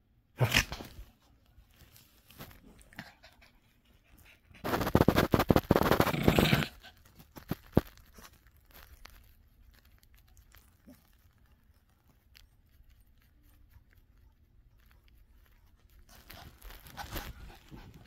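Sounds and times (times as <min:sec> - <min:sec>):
rustling of fur and bedding: 0:00.5 - 0:18.0.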